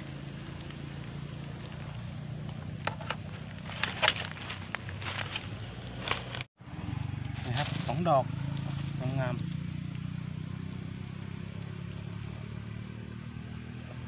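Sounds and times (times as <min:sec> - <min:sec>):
footsteps on dry leaves: 0:00.7 - 0:06.5.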